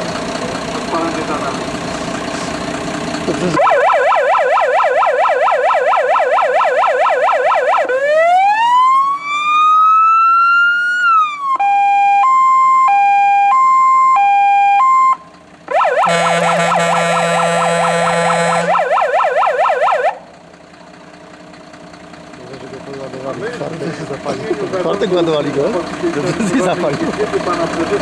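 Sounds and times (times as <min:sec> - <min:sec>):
fire engine siren: 0:03.4 - 0:20.4.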